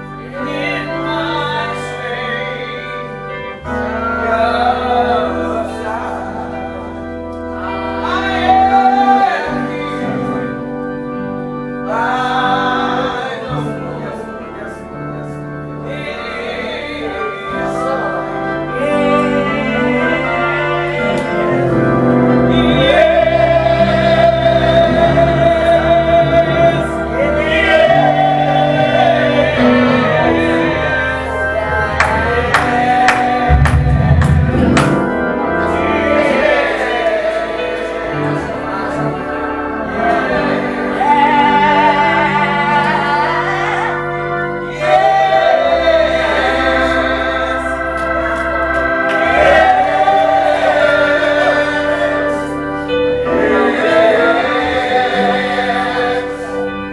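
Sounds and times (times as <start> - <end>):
gospel singing over chords: 0.0 - 56.9
drum hits: 33.5 - 35.2.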